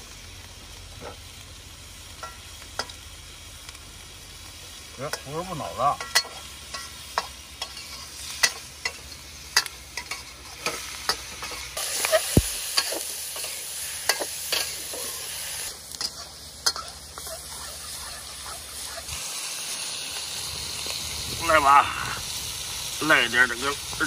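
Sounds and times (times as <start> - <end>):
hot oil sizzling: 0.0 - 24.0
metal spatula scraping wok: 5.1 - 19.2.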